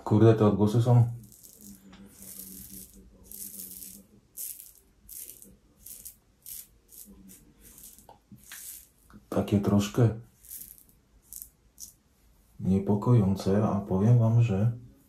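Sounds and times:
razor scraping through stubble: 0:01.2 - 0:09.0.

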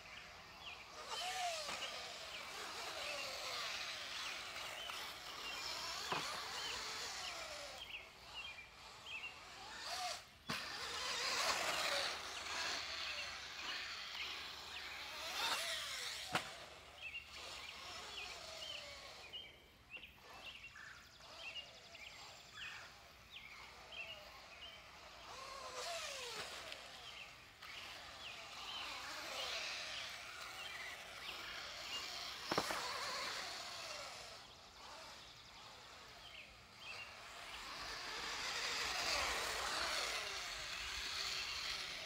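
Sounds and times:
rc car motor whine: 0:00.0 - 0:42.0.

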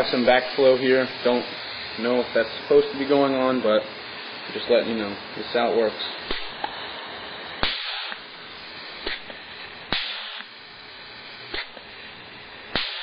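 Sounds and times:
steady air hiss: 0:00.0 - 0:13.0
rivet gun snaps: 0:06.3 - 0:06.5, 0:09.0 - 0:10.5, 0:11.5 - 0:11.9, 0:12.7 - 0:13.0.

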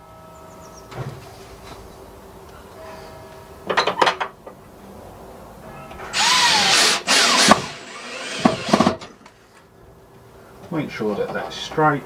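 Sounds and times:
cordless drill driving screw: 0:06.1 - 0:09.0.

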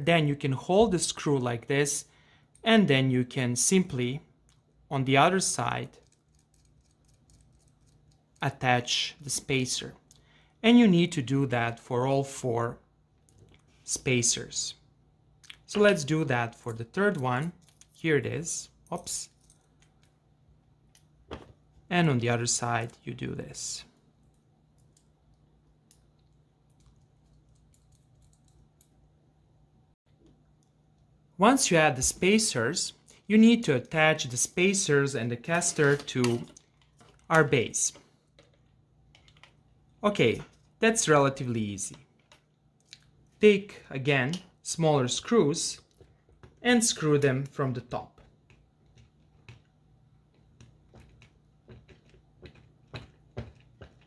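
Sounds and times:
small screws clicking and tapping: 0:06.0 - 0:08.4, 0:25.9 - 0:28.9.

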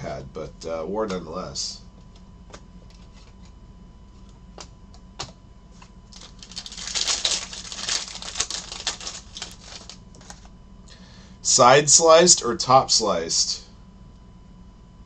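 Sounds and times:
cards being handled: 0:02.1 - 0:03.6, 0:04.2 - 0:10.5
foil wrapper tearing and crinkling: 0:06.1 - 0:10.5.

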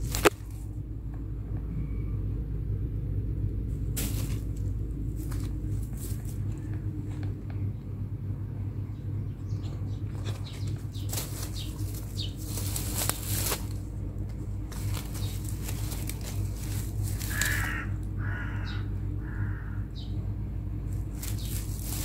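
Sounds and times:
dry grass rustling and crackling: 0:00.0 - 0:00.9, 0:03.6 - 0:07.6, 0:09.5 - 0:18.6, 0:20.8 - 0:22.0
steady low hum: 0:00.0 - 0:22.0.

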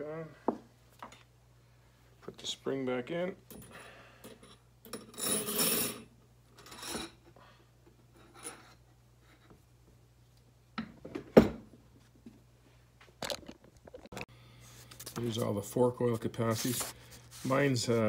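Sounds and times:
paper pages rustling: 0:13.9 - 0:18.0.

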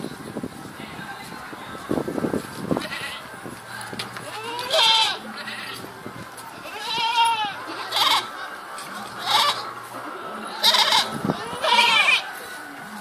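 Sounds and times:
goats bleating: 0:02.8 - 0:03.3, 0:04.2 - 0:05.9, 0:06.5 - 0:08.4, 0:09.0 - 0:09.8, 0:10.4 - 0:12.4.

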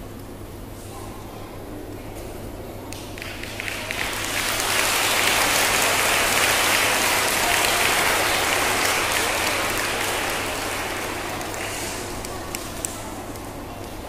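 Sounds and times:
audience clapping: 0:03.0 - 0:13.6.

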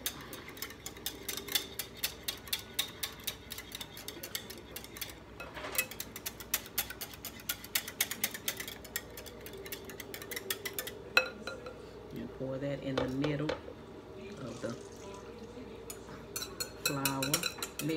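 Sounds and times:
whisk clicking against glass bowl: 0:00.0 - 0:11.6, 0:16.4 - 0:17.9.

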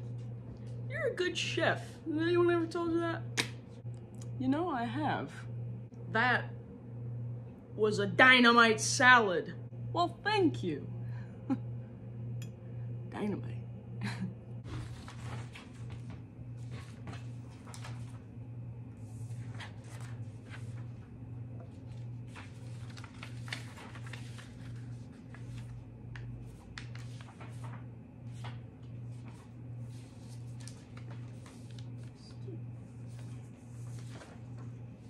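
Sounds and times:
low pulsing hum: 0:00.0 - 0:35.0
paper rustling and folding: 0:14.6 - 0:18.3, 0:19.0 - 0:35.0
book pages handled: 0:14.7 - 0:18.2, 0:19.2 - 0:35.0.

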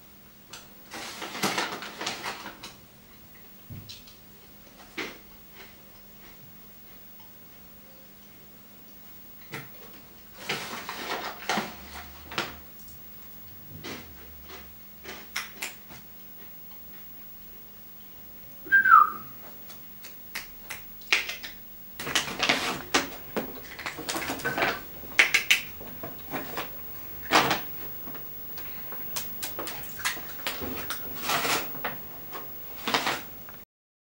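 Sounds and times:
plastic bag crinkling: 0:22.0 - 0:27.8.

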